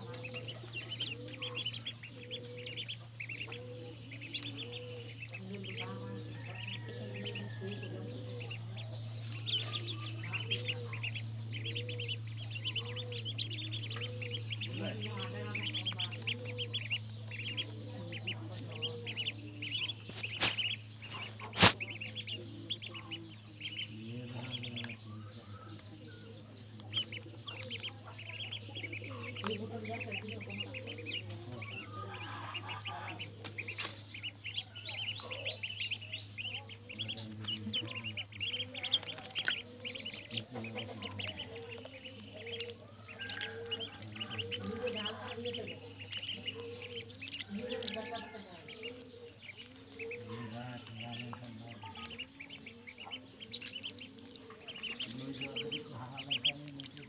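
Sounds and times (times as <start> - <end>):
ducklings peeping: 0.0 - 57.0
steady low hum: 0.0 - 57.0.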